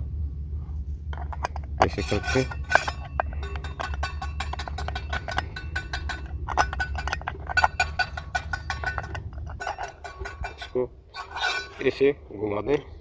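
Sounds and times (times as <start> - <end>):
steady low hum: 0.0 - 13.0
plastic lamp clicks and clinks: 2.4 - 10.7.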